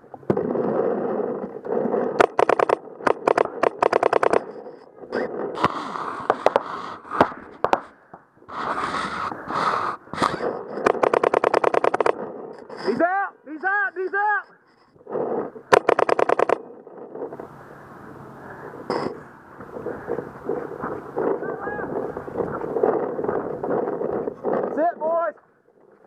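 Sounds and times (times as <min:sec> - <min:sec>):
steady rushing noise: 0:00.0 - 0:25.4
paintball markers firing rapidly: 0:00.3 - 0:07.9, 0:08.5 - 0:13.0, 0:15.1 - 0:17.4, 0:19.9 - 0:25.2.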